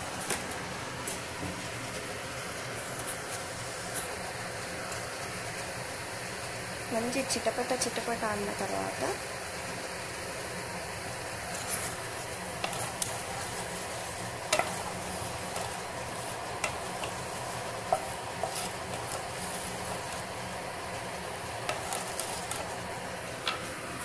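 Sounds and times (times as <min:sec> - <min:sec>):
seeds sizzling in hot oil: 0:00.0 - 0:24.0.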